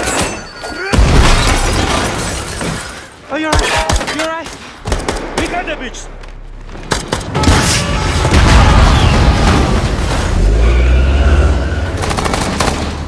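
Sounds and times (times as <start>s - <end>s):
explosions booming: 7.3s - 10.8s.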